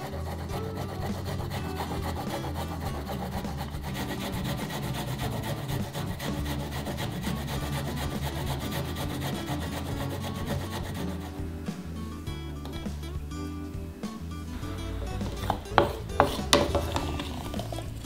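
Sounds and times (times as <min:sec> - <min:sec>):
ginger rasping on hand grater: 0:00.0 - 0:11.5, 0:14.5 - 0:18.0.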